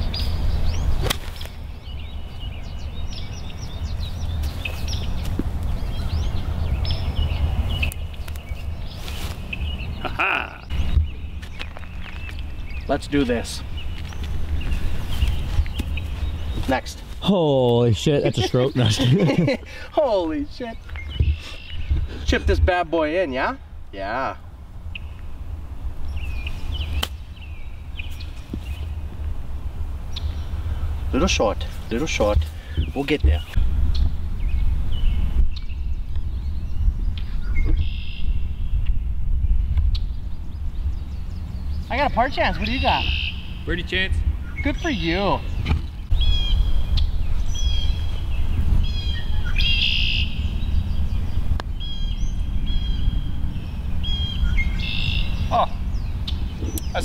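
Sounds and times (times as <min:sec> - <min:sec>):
bird chirps: 0:00.0 - 0:16.8, 0:18.0 - 0:22.3, 0:26.0 - 0:29.1, 0:30.1 - 0:57.0
steady low rumble: 0:00.0 - 0:57.0
golf club striking ball: 0:01.0 - 0:01.6, 0:27.0 - 0:27.2.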